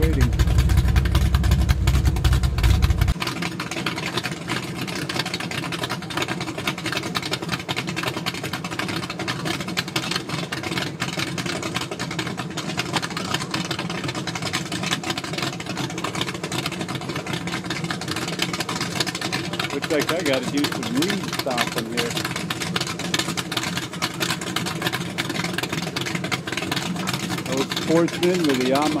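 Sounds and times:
heavy low rumble: 0.0s - 3.2s, 19.7s - 22.5s
boat engine idling: 0.0s - 29.0s.

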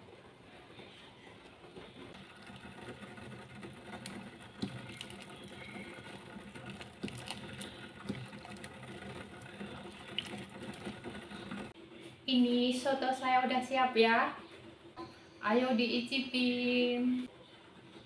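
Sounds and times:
soup splashing: 4.6s - 11.6s.

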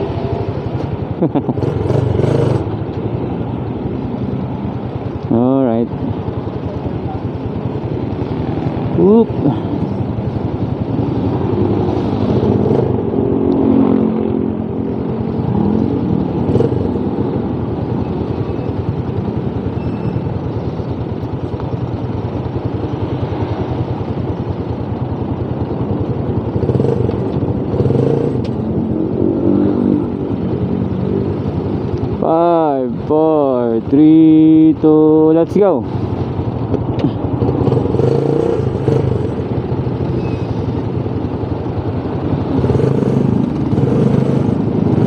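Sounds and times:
motorcycle engines idling: 0.0s - 13.3s, 14.0s - 45.0s
engine revs: 1.4s - 2.8s, 37.0s - 40.6s, 42.4s - 45.0s.

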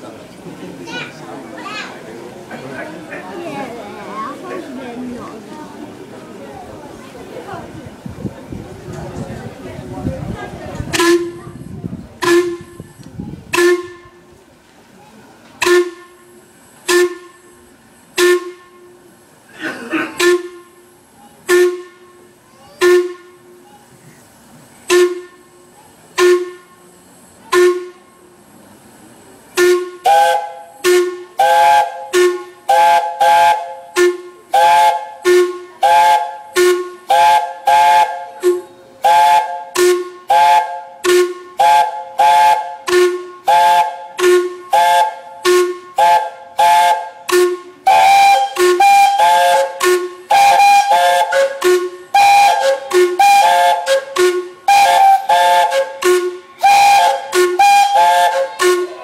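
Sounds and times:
steam whistles playing a tune: 10.9s - 14.3s, 15.6s - 19.0s, 20.2s - 23.5s, 24.8s - 28.1s, 29.5s - 59.0s.

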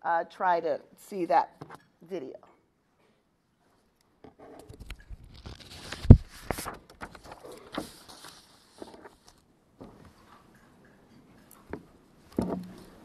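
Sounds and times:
rustling at a lectern: 3.6s - 11.7s.

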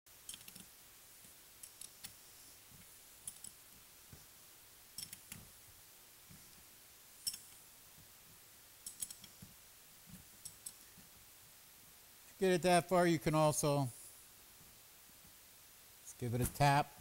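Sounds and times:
ratchet wrench clicking: 0.3s - 0.7s.

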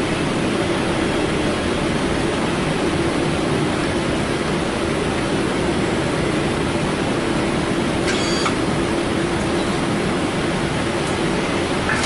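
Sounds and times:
rushing airflow and ventilation: 0.0s - 12.0s
brief high tone: 8.1s - 8.6s.

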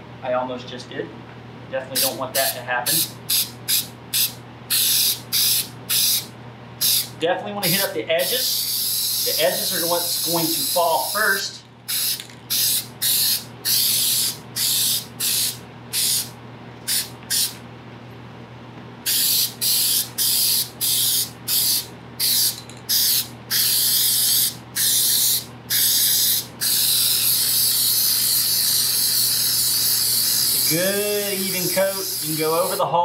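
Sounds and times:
aerosol can hissing: 2.9s - 7.1s, 8.2s - 11.3s, 11.9s - 16.3s, 16.9s - 17.6s, 19.1s - 32.8s.

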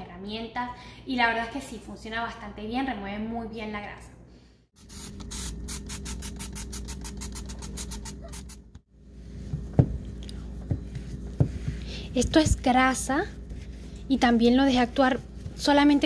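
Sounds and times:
spray bottle pulses: 4.8s - 8.8s.

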